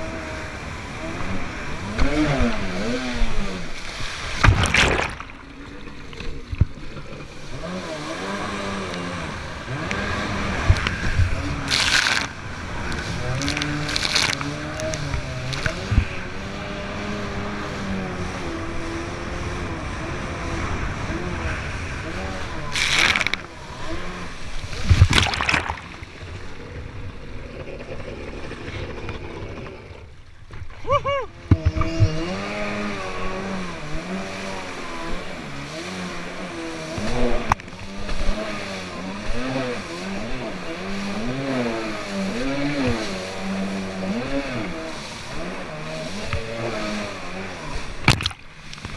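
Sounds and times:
water rushing and spraying: 0:00.0 - 0:27.4, 0:32.2 - 0:48.9
jet ski engine running: 0:00.0 - 0:48.9
water spray rushing: 0:09.3 - 0:16.4, 0:22.4 - 0:26.2.

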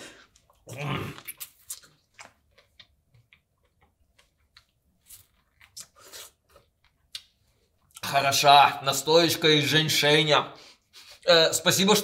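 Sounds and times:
small clicks and mouth noises: 0:00.2 - 0:08.1.

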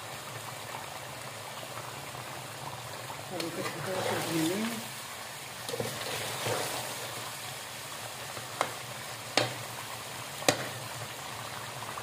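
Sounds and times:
food sizzling in a metal pan: 0:00.0 - 0:12.0
metal spatula knocking on pan: 0:09.4 - 0:09.6, 0:10.4 - 0:10.8.

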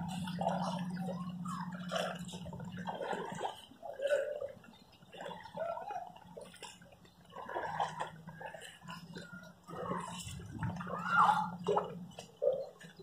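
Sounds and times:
footsteps splashing through water: 0:00.0 - 0:13.0.

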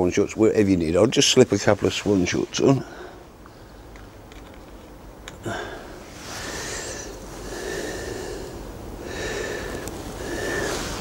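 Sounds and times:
man breathing through nose: 0:05.4 - 0:11.0.

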